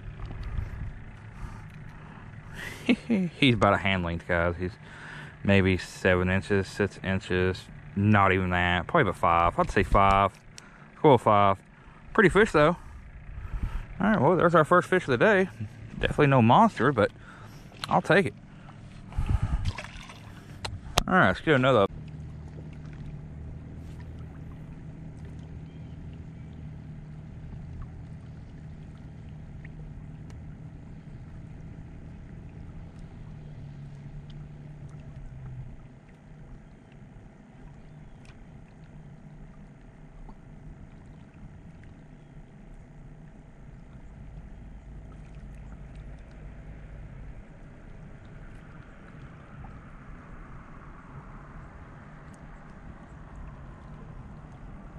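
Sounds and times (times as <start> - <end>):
distant motor droning: 0.0 - 54.9.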